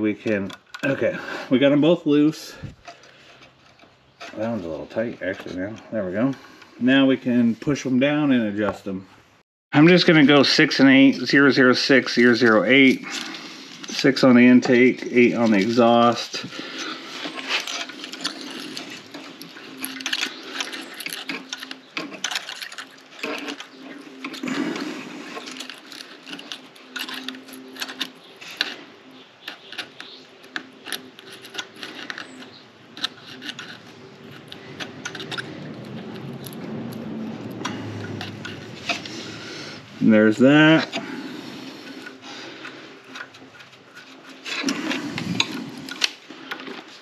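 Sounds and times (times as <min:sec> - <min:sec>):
metallic clicks and scrapes of hand tools: 0:12.1 - 0:39.9, 0:40.7 - 0:47.0.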